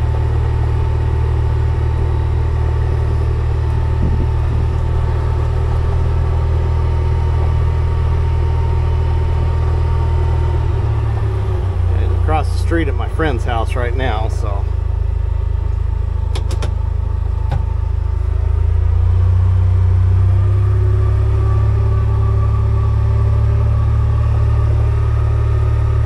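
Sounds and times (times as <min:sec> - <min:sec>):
thin steady whine: 0:00.0 - 0:26.0
vehicle engine humming: 0:00.0 - 0:26.0.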